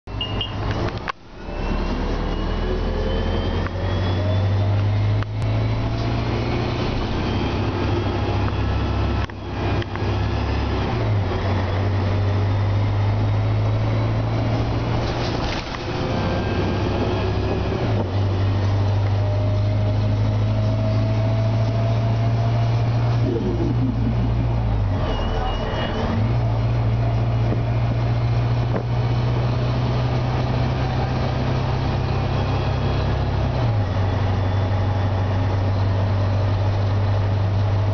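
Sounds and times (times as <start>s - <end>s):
bus engine drone: 0.1s - 37.9s
transmission whine rising in pitch: 1.4s - 11.1s, 19.1s - 26.7s.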